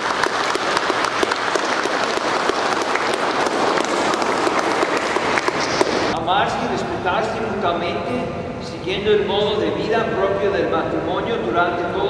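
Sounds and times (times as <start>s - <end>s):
congregation applauding: 0.0s - 6.2s.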